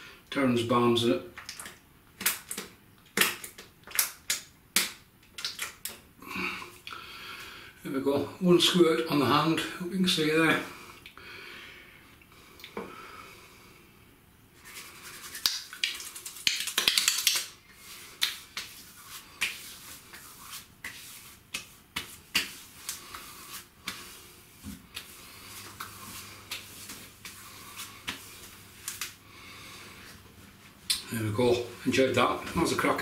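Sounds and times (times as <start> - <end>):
hands patting skin: 1.4 - 6.0, 14.6 - 29.2
hands rubbing together: 14.6 - 30.8.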